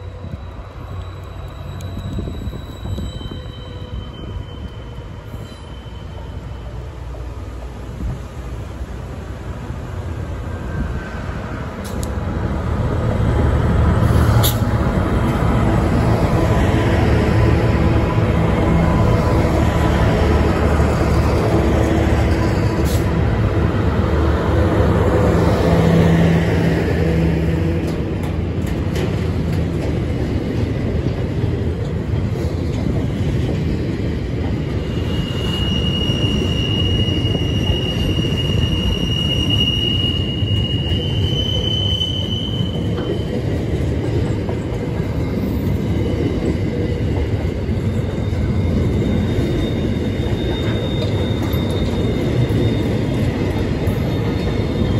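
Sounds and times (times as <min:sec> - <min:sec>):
high wheel squeal: 0:00.0 - 0:06.8, 0:34.7 - 0:44.3, 0:47.3 - 0:54.9
diesel locomotive engine: 0:00.0 - 0:54.9.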